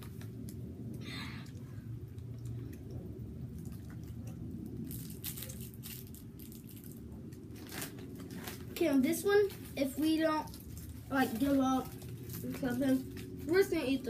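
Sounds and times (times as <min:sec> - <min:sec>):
low background hum: 0:00.0 - 0:14.0
plastic wrapper crackling: 0:04.8 - 0:13.8.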